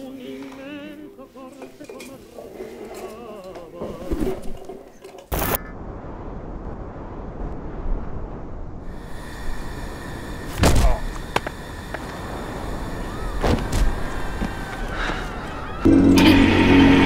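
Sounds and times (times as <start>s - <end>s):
low rumble: 5.6s - 10.5s.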